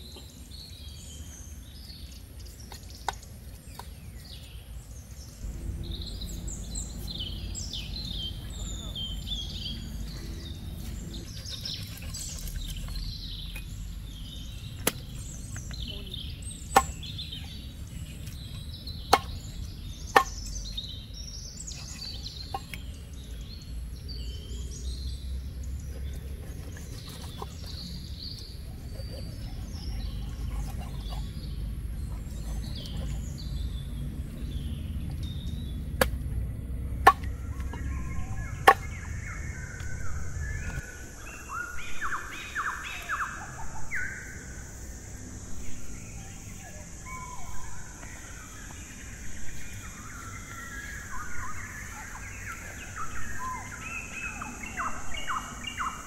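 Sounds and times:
birds chirping: 0:00.0 - 0:56.0
cleaver chopping on wooden board: 0:19.1 - 0:19.4.

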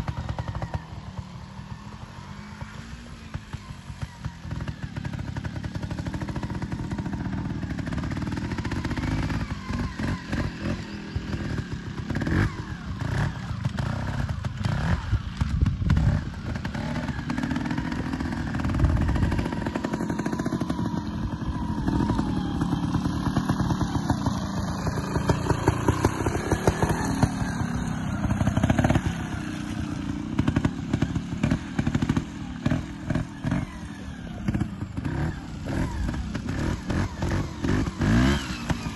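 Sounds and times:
two-stroke motorbike engine revving: 0:00.0 - 0:38.9.

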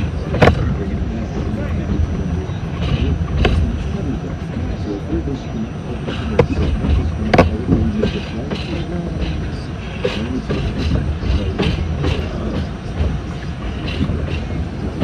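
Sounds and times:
train rumbling in tunnel: 0:00.0 - 0:15.0
wheels clicking over rail joints: 0:06.1 - 0:15.0.

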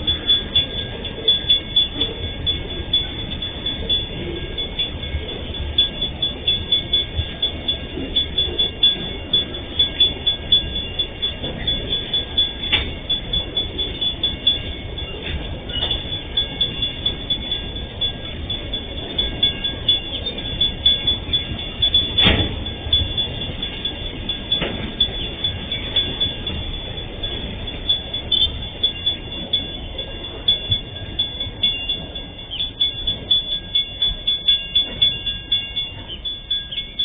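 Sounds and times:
freight train wheels clattering: 0:00.0 - 0:37.0
level crossing warning bell: 0:00.0 - 0:37.0
metallic clanks: 0:18.5 - 0:29.7.

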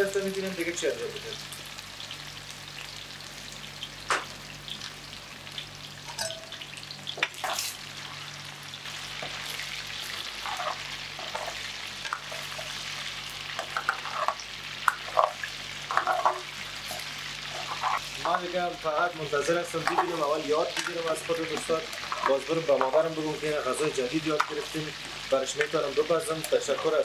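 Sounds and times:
chicken sizzling in oil: 0:00.0 - 0:27.0
metal spoon clinking against pan: 0:06.1 - 0:06.6.

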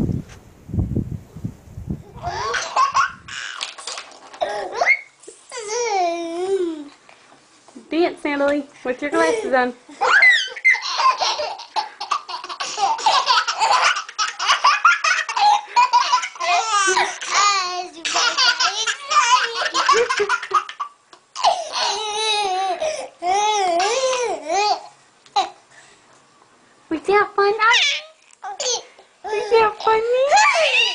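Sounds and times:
baby and toddler laughing: 0:02.1 - 0:07.0, 0:09.3 - 0:25.6, 0:27.7 - 0:30.9.

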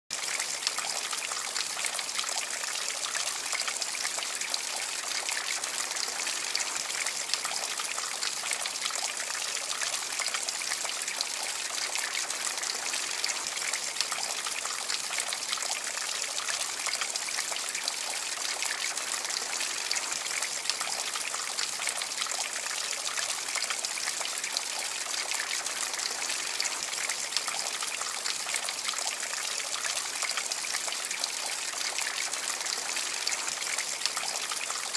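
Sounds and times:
water trickling and splattering: 0:00.1 - 0:34.9.

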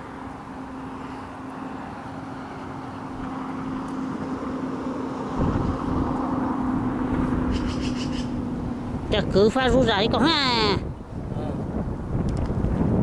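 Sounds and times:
engine drone: 0:00.0 - 0:13.0.

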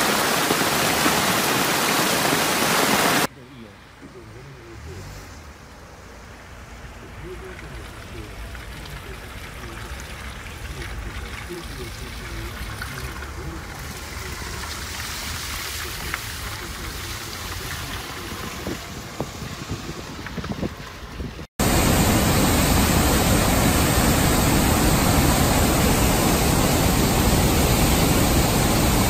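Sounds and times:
floodwater torrent rushing: 0:00.0 - 0:03.3, 0:07.1 - 0:29.0
rain: 0:00.0 - 0:03.3, 0:06.0 - 0:29.0
swollen river rushing: 0:00.0 - 0:03.3, 0:21.6 - 0:29.0.

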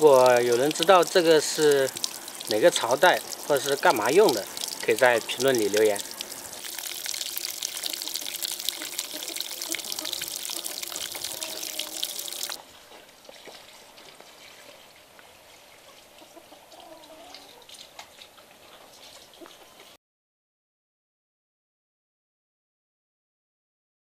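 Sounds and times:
water running from a hose: 0:00.0 - 0:12.6
faint outdoor background: 0:00.0 - 0:20.0.

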